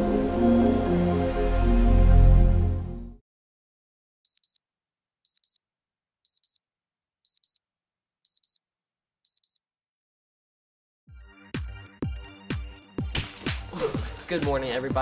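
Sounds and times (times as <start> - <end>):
alarm clock double beeps: 4.3 - 4.6.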